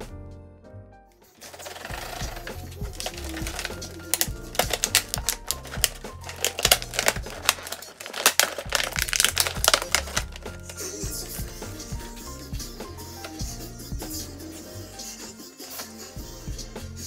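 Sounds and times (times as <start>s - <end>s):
background music with steady beat: 1.2s - 17.0s
baubles clattering in a tube: 1.4s - 11.4s.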